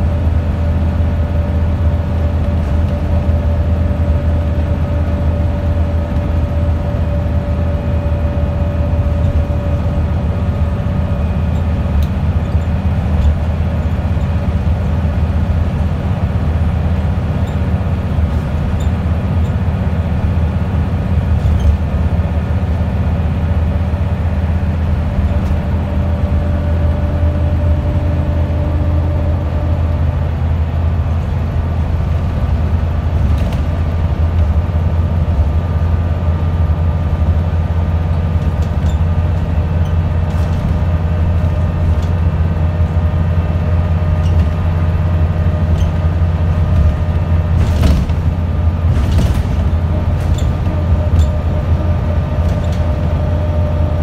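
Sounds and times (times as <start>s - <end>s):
bus engine drone: 0.0s - 54.0s
road noise: 0.0s - 54.0s
light body rattles: 38.3s - 43.2s, 45.5s - 53.2s.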